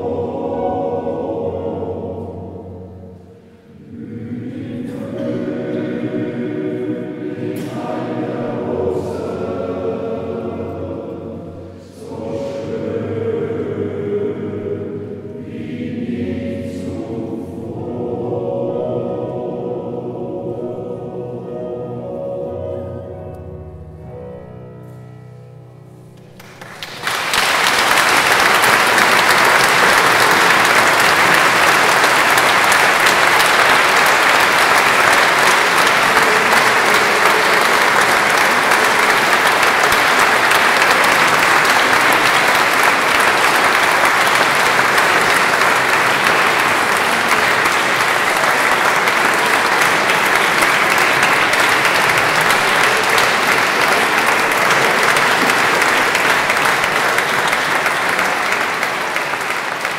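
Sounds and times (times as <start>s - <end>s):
men's choir holding chord: 0.0s - 24.3s, 27.7s - 59.9s
audience applause: 26.4s - 59.9s.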